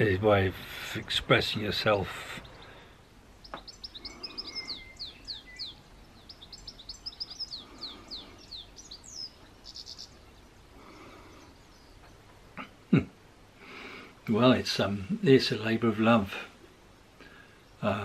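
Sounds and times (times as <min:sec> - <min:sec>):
small bird chirping: 0:02.2 - 0:12.6.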